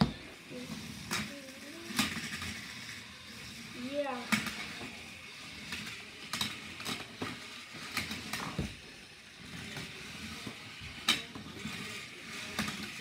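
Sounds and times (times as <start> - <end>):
small electric motors whirring: 0.0 - 13.0.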